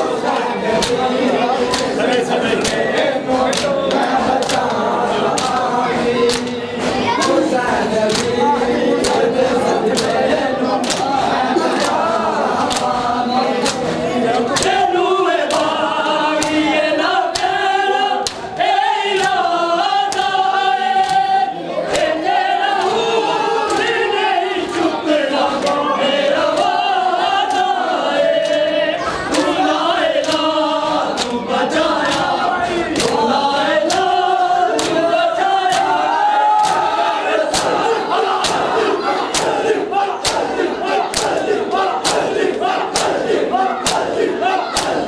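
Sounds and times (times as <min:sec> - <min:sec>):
men chanting together: 0:00.0 - 0:45.0
hands slapping bare chests: 0:00.8 - 0:01.0, 0:01.6 - 0:07.3, 0:08.1 - 0:08.4, 0:09.0 - 0:09.2, 0:09.9 - 0:10.2, 0:10.8 - 0:14.8, 0:15.4 - 0:15.8, 0:16.4 - 0:16.6, 0:17.3 - 0:17.6, 0:18.2 - 0:18.6, 0:21.0 - 0:21.3, 0:30.2 - 0:31.4, 0:32.0 - 0:33.2, 0:34.7 - 0:35.0, 0:35.7 - 0:36.0, 0:36.6 - 0:45.0.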